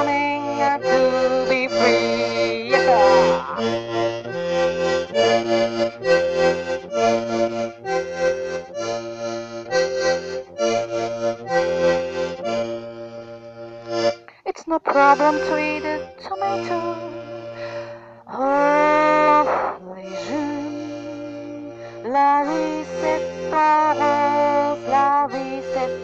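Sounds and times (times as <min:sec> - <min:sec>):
button accordion playing: 0:00.0 - 0:26.0.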